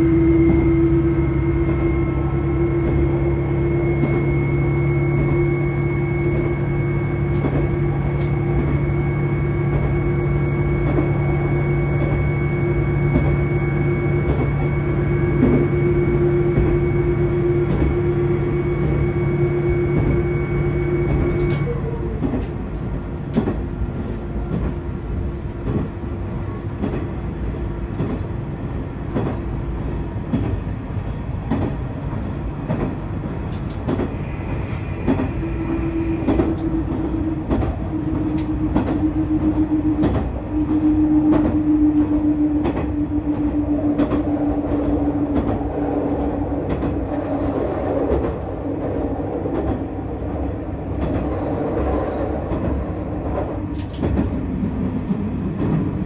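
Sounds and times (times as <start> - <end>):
diesel railcar engine drone: 0.0 - 56.0
wheels rumbling on rails: 0.0 - 56.0
sharp rail clicks: 31.4 - 34.1, 46.6 - 56.0.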